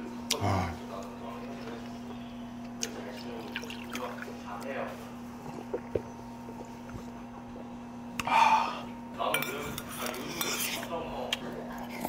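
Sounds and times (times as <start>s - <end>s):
utensils clinking against dishes: 9.2s - 11.0s.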